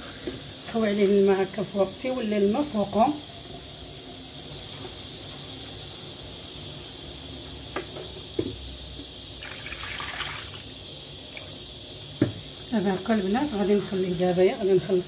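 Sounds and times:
water pouring and splashing: 0:09.4 - 0:10.6.

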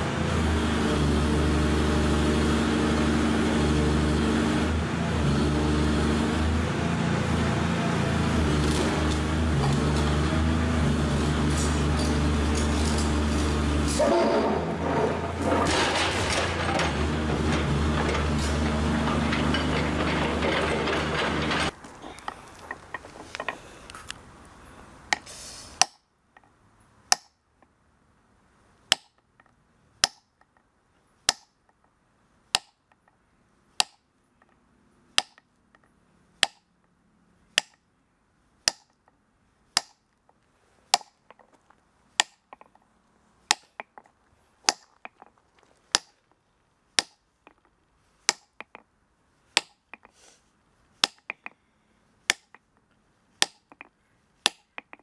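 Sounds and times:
steady background noise: 0:00.0 - 0:55.0
hammer striking steel chisel: 0:25.1 - 0:26.1, 0:27.1 - 0:27.4, 0:28.9 - 0:30.5, 0:31.3 - 0:31.8, 0:32.5 - 0:33.0, 0:33.8 - 0:34.5, 0:35.2 - 0:35.5, 0:36.4 - 0:36.7, 0:37.6 - 0:37.8, 0:38.6 - 0:39.1, 0:39.8 - 0:40.1, 0:40.9 - 0:41.2, 0:42.2 - 0:42.7, 0:43.5 - 0:44.0, 0:44.7 - 0:45.2, 0:45.9 - 0:46.2, 0:47.0 - 0:47.6, 0:48.3 - 0:48.8, 0:49.6 - 0:50.1, 0:51.0 - 0:51.6, 0:52.3 - 0:52.6, 0:53.4 - 0:55.0.

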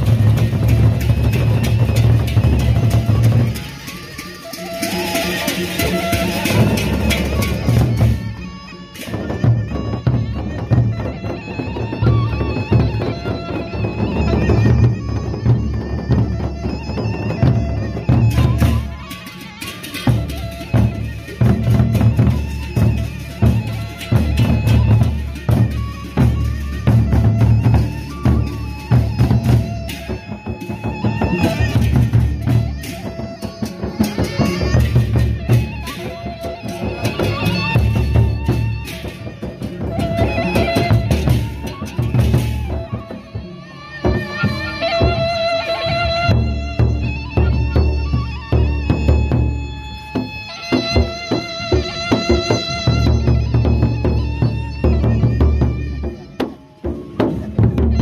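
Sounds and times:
hand cymbals clashing: 0:00.0 - 0:11.9, 0:16.5 - 0:43.1
barrel drums beaten: 0:00.0 - 0:58.0.

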